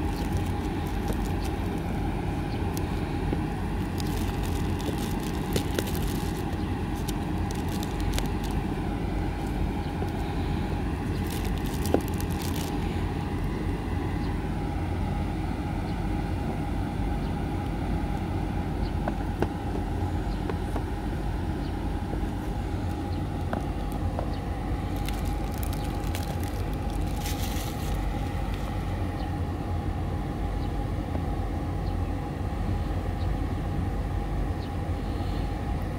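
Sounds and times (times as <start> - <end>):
plastic wrap crinkling: 0.0 - 2.0, 2.6 - 2.9, 3.7 - 10.2, 11.0 - 12.9, 24.8 - 28.6
low outdoor rumble: 0.0 - 35.9.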